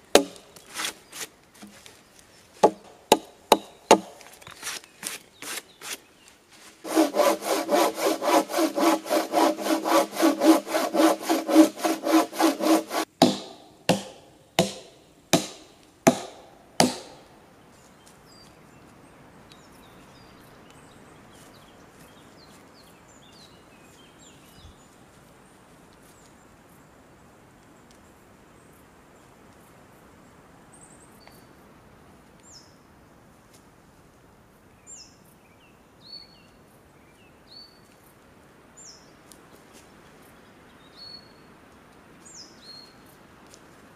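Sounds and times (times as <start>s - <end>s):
forest ambience: 0.0s - 43.9s
axe blows on wood: 0.2s - 0.9s, 8.4s - 17.3s
hand saw cutting wood: 0.2s - 1.8s, 2.6s - 6.0s, 6.6s - 17.2s.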